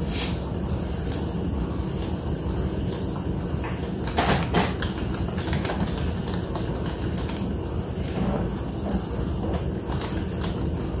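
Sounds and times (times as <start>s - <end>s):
inkjet printer printing: 0.0s - 11.0s.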